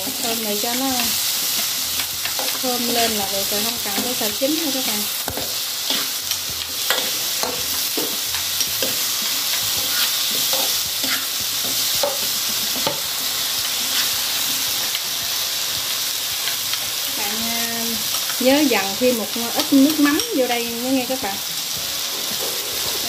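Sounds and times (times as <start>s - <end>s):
food sizzling in oil: 0.0s - 23.0s
spatula scraping a pan: 5.3s - 14.5s.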